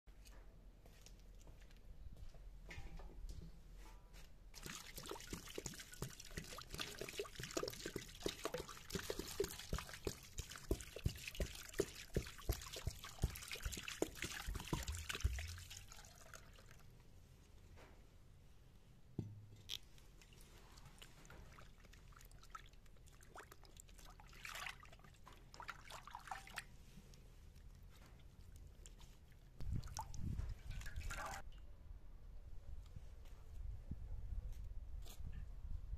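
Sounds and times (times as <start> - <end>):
water splashing in a metal basin: 4.6 - 16.8, 20.2 - 26.7, 29.6 - 31.5
water dripping: 4.6 - 16.9, 29.6 - 31.5.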